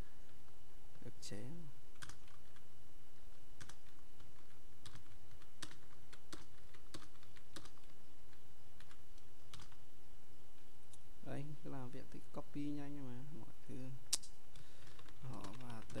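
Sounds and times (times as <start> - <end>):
computer keyboard keystrokes: 2.0 - 2.6, 3.6 - 7.9, 8.8 - 9.8, 14.2 - 16.0.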